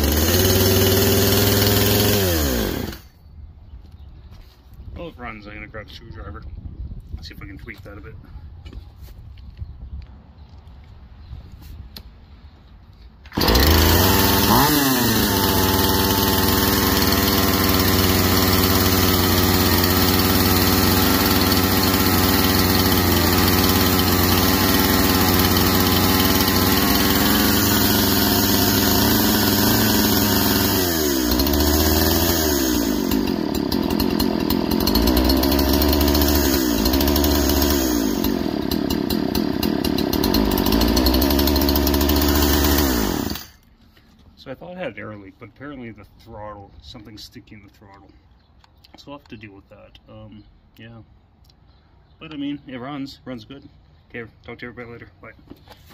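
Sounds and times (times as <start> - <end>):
chainsaw running: 0.0 - 3.1, 13.3 - 43.7.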